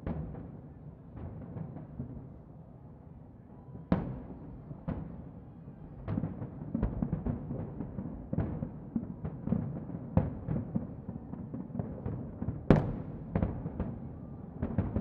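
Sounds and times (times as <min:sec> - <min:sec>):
fireworks booming: 0:06.0 - 0:15.0.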